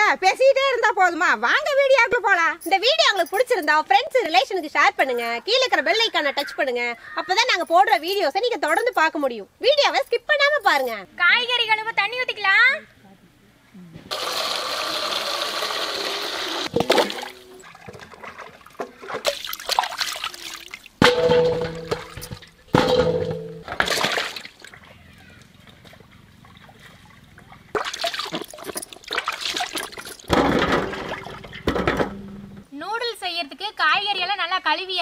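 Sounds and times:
water pouring into vessel: 0:14.1 - 0:21.0, 0:27.8 - 0:30.3
splashing pours: 0:14.1 - 0:22.9, 0:23.7 - 0:25.8, 0:26.4 - 0:31.7.

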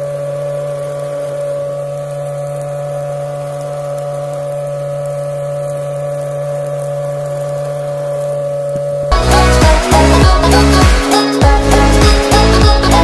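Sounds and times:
small motor whining: 0:00.0 - 0:13.0.

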